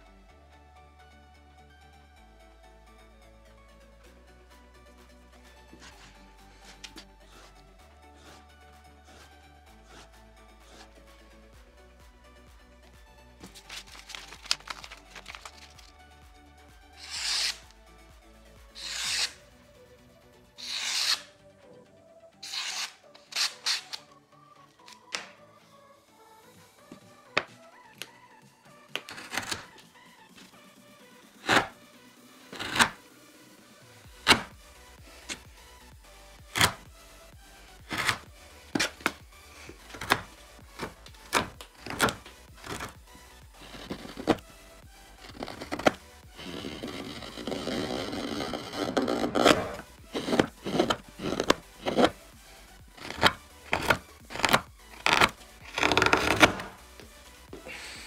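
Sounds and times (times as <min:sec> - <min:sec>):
soft background music: 0:00.0 - 0:58.0
abrasive hand tool strokes: 0:17.0 - 0:17.6, 0:18.8 - 0:19.4, 0:20.6 - 0:21.3, 0:45.2 - 0:52.2.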